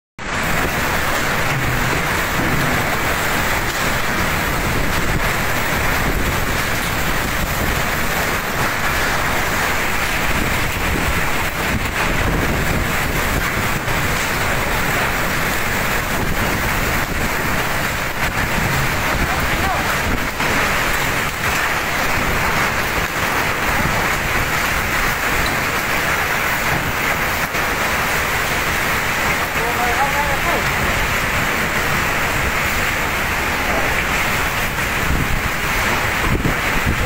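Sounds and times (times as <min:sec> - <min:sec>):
driving rain: 0:00.2 - 0:37.0
typhoon wind: 0:00.2 - 0:37.0.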